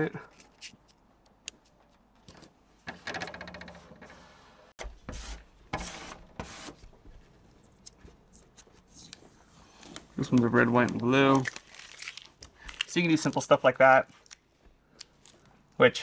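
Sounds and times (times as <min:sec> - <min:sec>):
crackly rubbing of tape: 0:00.3 - 0:02.0, 0:07.5 - 0:13.5.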